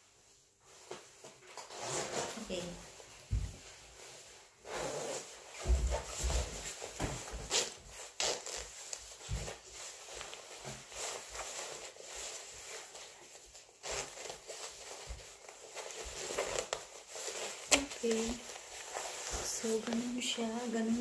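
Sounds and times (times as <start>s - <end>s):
parka rustling: 0.7s - 21.0s.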